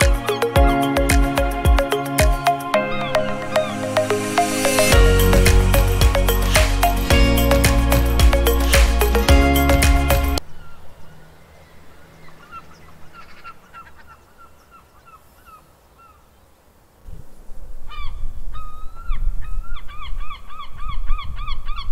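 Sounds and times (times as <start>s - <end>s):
birds calling: 6.2s - 16.6s.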